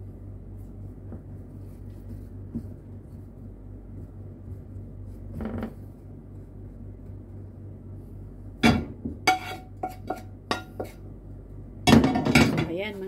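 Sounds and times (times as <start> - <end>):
steady low hum: 0.0 - 13.0
wooden spatula knocking metal pan: 8.6 - 11.0.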